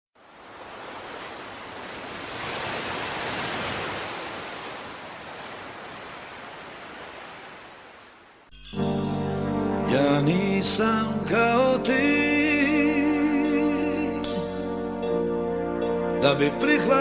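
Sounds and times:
sea surf washing on shore: 0.2s - 8.3s.

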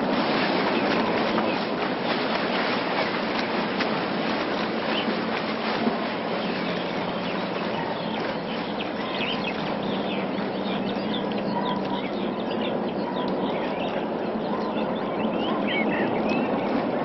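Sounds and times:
small birds chirping: 6.4s - 16.8s.

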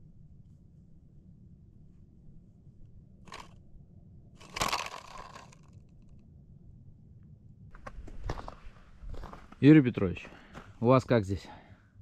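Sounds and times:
low steady rumble: 0.0s - 9.6s
crunching rustle: 4.4s - 5.9s.

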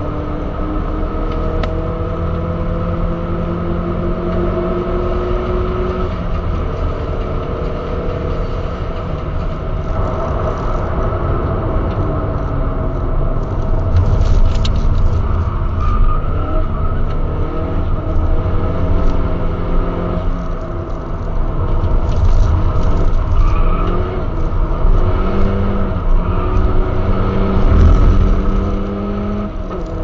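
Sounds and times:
car engine pulling under load: 11.9s - 30.0s.

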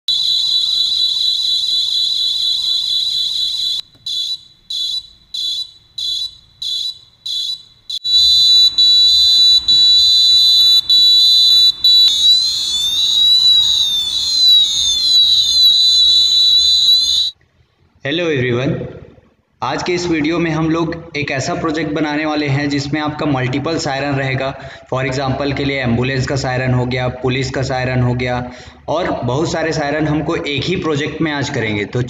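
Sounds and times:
piezo buzzer siren patterns: 2.1s - 15.1s.

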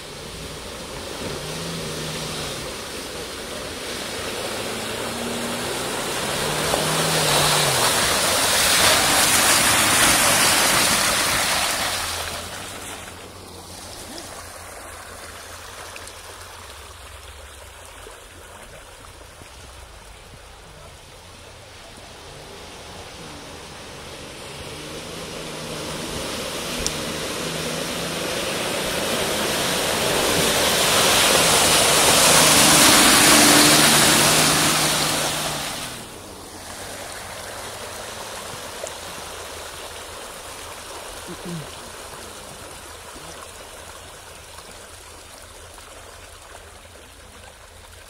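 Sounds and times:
engine revving: 0.0s - 11.0s, 22.0s - 36.2s
tyres churning through mud: 0.0s - 48.0s.

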